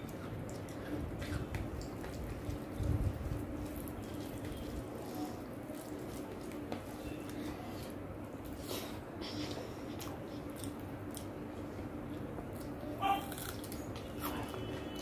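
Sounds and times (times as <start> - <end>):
fingers mixing wet food: 0.0 - 7.9.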